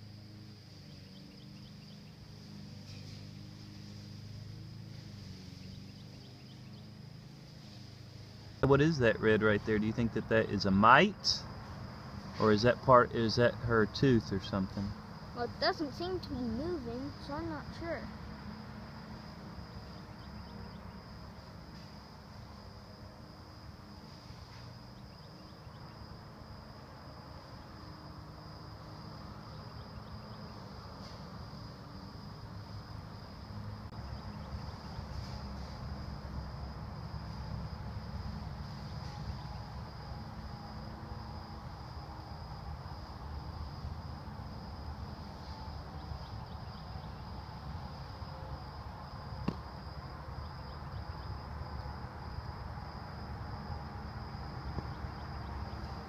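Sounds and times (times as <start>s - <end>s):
insects trilling: 0.0s - 56.0s.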